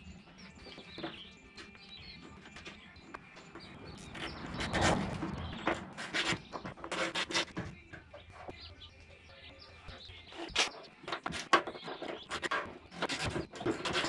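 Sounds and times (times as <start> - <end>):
metal boot lid scraping and knocking: 3.4 - 8.4, 10.5 - 14.0.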